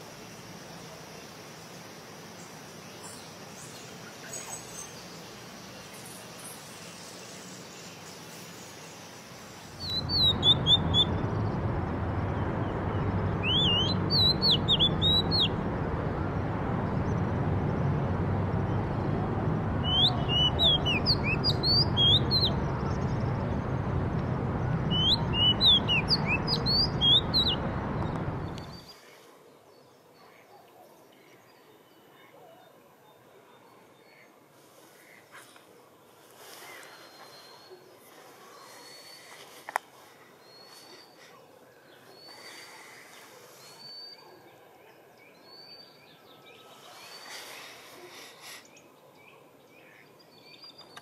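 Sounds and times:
birds chirping: 0:02.4 - 0:29.0
rushing background noise: 0:09.4 - 0:28.8.

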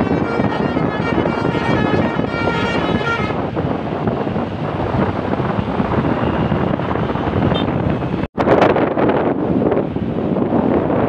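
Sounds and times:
bus horn playing multi-tone melody: 0:00.0 - 0:03.5
bus passing: 0:00.0 - 0:08.3
wind on microphone: 0:00.0 - 0:11.0.

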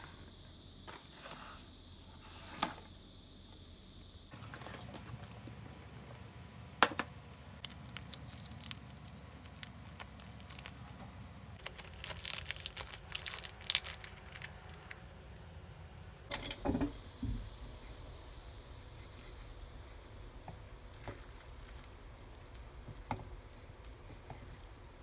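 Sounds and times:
plastic sachets crinkling: 0:07.6 - 0:15.0.

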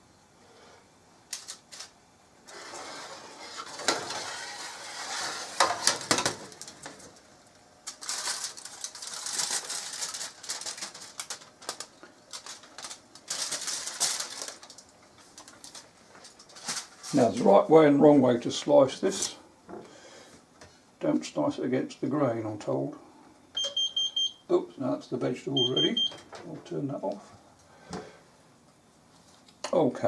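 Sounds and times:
aluminium foil crumpling: 0:01.3 - 0:02.8, 0:03.6 - 0:17.3.

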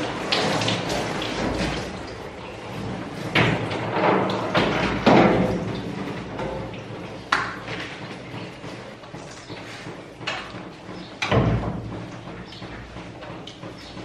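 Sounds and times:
shower water spraying: 0:00.0 - 0:06.2
knocks against steel tub: 0:03.3 - 0:06.7, 0:09.9 - 0:14.0.

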